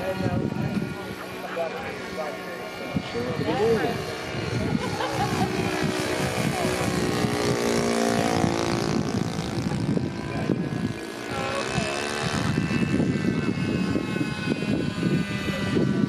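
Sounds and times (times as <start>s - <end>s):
model helicopter rotor whine: 0.0s - 16.0s.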